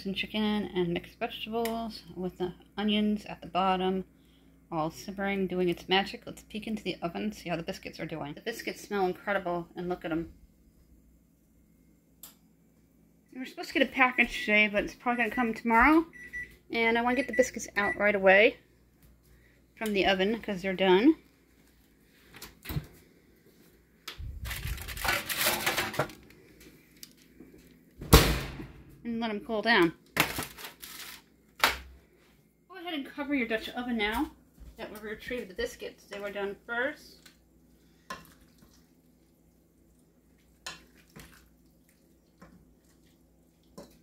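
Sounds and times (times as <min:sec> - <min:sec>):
baking sheet scraping and rustling: 0:24.3 - 0:26.2
wet stirring in a pot: 0:35.2 - 0:44.0.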